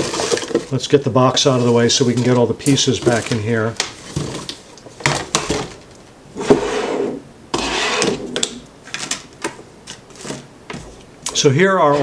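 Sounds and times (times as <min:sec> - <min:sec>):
scraping on stone countertop: 0:06.4 - 0:08.5.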